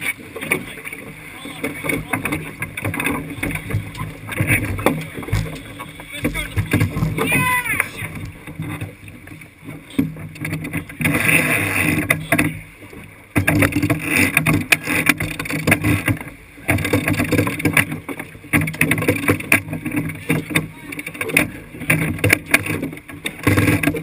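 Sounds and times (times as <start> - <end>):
water splashing along hull: 0.0 - 24.0
steady low rumble: 0.7 - 9.0
sharp knocks: 1.6 - 8.7.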